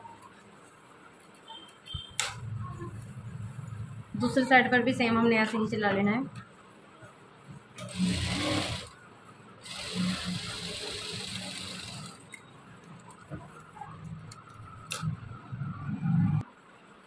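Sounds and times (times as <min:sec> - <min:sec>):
sewing machine stitching: 0:07.8 - 0:09.0, 0:09.6 - 0:12.4.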